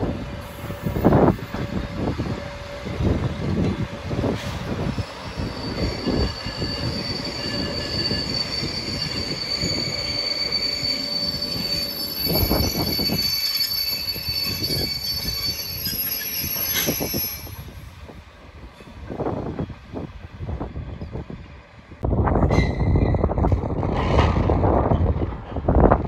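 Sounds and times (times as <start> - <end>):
train wheels squealing: 0.4 - 17.9.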